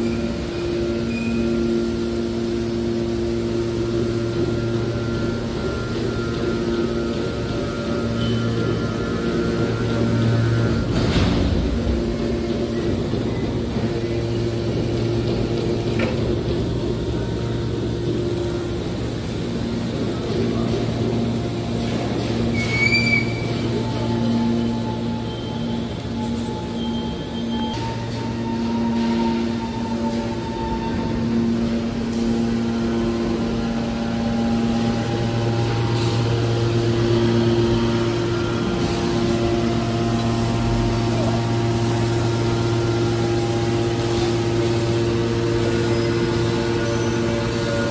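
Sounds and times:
hydraulic baler humming: 0:00.0 - 0:47.9.

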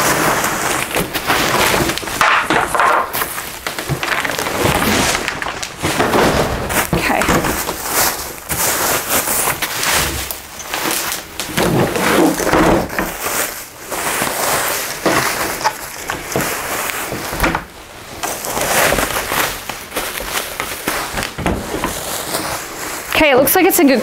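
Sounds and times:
packaging rustling and crinkling: 0:00.0 - 0:24.0
scrapes: 0:00.0 - 0:24.0.

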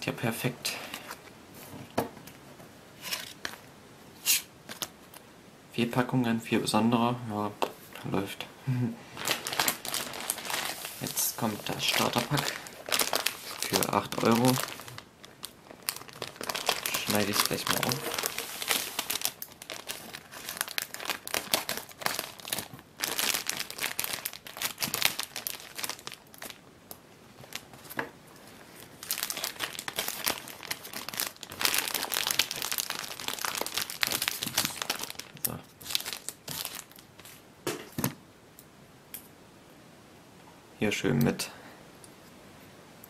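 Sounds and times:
plastic wrapping crinkling: 0:09.1 - 0:37.4.

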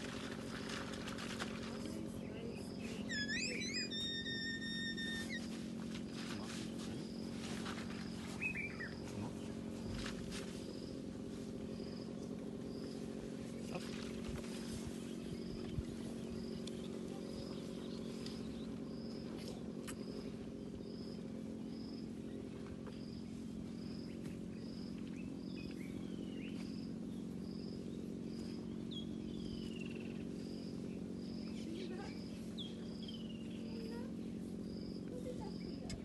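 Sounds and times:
low purring drone: 0:00.0 - 0:36.0
short high chirp: 0:03.1 - 0:05.5.

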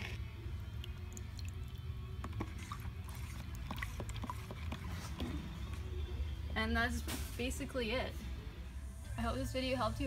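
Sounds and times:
stir stick squishing in paint: 0:00.0 - 0:05.9.

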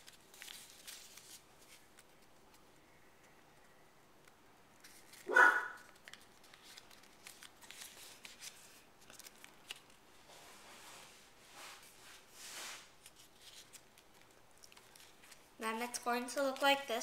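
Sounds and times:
paper folding and creasing: 0:00.0 - 0:02.7, 0:04.8 - 0:10.0, 0:11.8 - 0:15.5
paper rustles and crackles: 0:00.0 - 0:02.7, 0:04.8 - 0:16.8
short loud yelp: 0:05.3 - 0:05.8.

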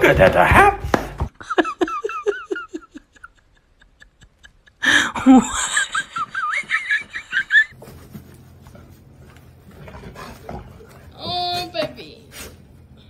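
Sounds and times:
person laughing in rhythmic bursts: 0:01.3 - 0:07.8.

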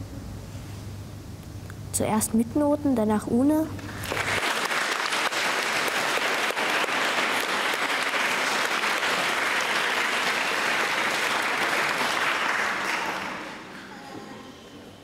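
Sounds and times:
audience applause: 0:03.9 - 0:14.0.

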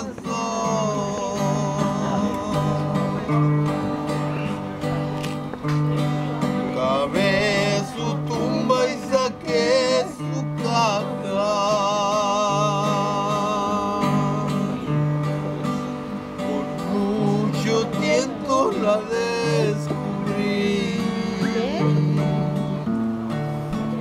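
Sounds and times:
acoustic guitar strumming: 0:00.0 - 0:24.0
person singing with vibrato: 0:16.5 - 0:22.9.

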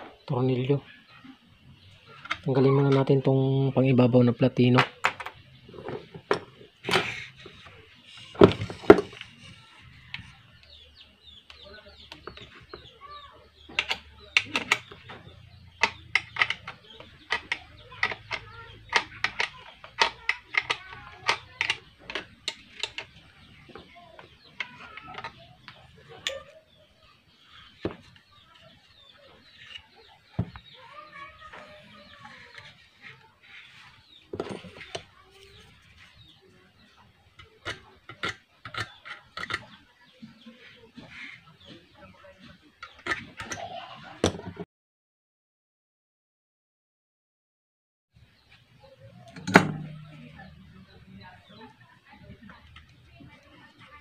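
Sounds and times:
metal tool clicking on contacts: 0:15.7 - 0:23.1.

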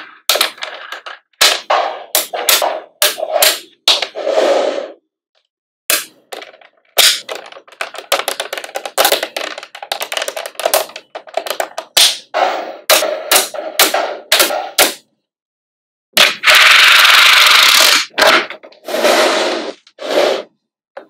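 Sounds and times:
magnetic balls clicking together: 0:06.3 - 0:12.3.

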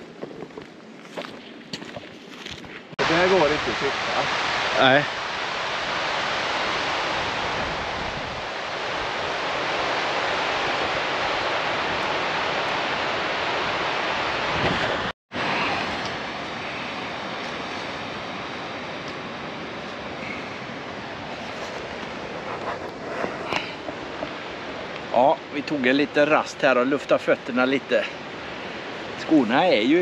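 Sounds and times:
river rushing over rapids: 0:03.0 - 0:22.4.

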